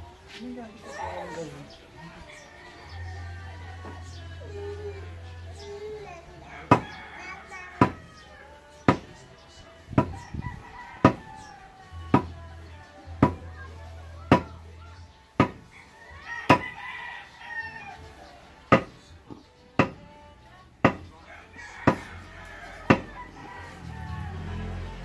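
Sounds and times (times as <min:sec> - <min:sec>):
rooster crowing: 0:01.2 - 0:04.0, 0:06.4 - 0:08.7, 0:10.1 - 0:11.9, 0:15.7 - 0:18.2, 0:21.2 - 0:25.0
metal-on-metal pounding on pipe: 0:13.2 - 0:13.4, 0:14.3 - 0:14.5, 0:19.8 - 0:20.0, 0:20.8 - 0:21.1.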